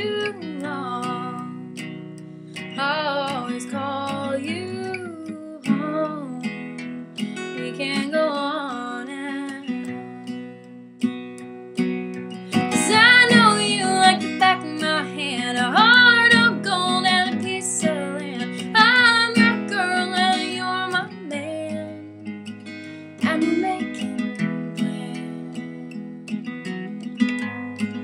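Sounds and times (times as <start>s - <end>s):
woman singing: 0.0s - 1.9s, 2.7s - 10.4s, 12.5s - 22.4s, 23.2s - 25.8s
acoustic guitar strumming: 0.0s - 28.0s.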